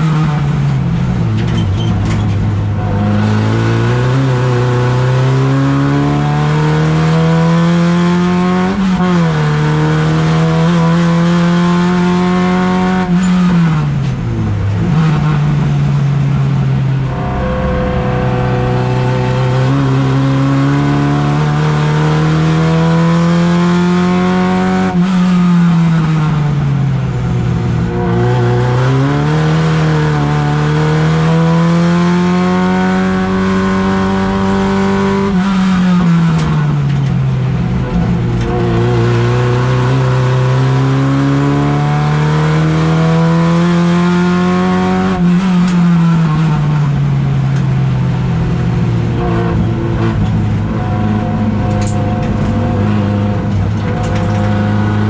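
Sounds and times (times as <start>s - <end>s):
race car engine revving: 0.0s - 55.0s.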